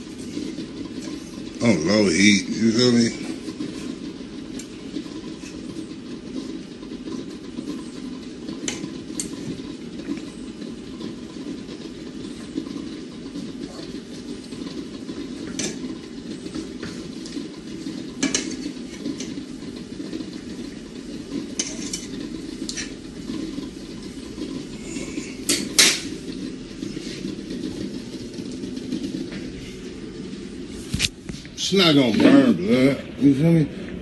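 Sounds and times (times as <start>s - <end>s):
metal cookware clinking: 25.4s - 26.1s.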